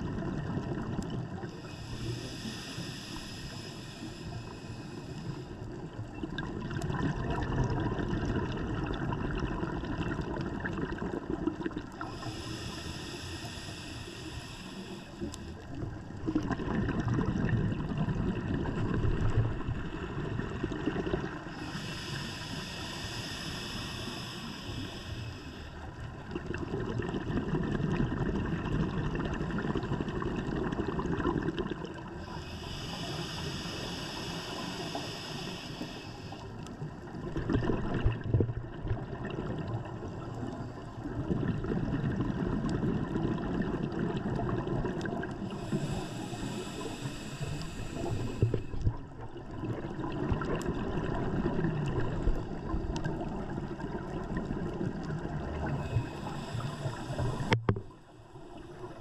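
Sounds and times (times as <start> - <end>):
regulator hiss on inhale: 1.4 - 6.0, 11.9 - 16.0, 21.2 - 26.3, 32.0 - 37.1, 45.3 - 49.0, 55.5 - 59.0
exhaled bubbles rushing: 6.2 - 12.2, 15.8 - 21.6, 26.2 - 32.1, 37.0 - 45.7, 47.9 - 58.0.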